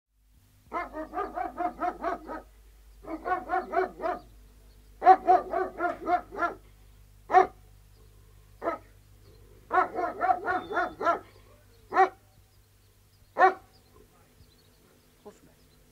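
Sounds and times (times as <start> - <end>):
dogs barking: 0.7 - 4.4, 5.0 - 7.6, 8.6 - 9.0, 9.6 - 12.3, 13.4 - 14.1.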